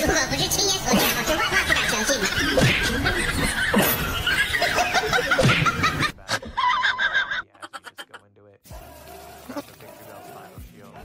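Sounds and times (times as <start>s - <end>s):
person giggling: 2.4s - 8.3s.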